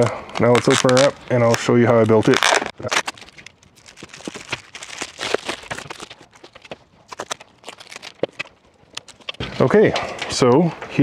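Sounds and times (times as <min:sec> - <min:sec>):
foil insulation crinkling and tearing: 0:00.0 - 0:09.4.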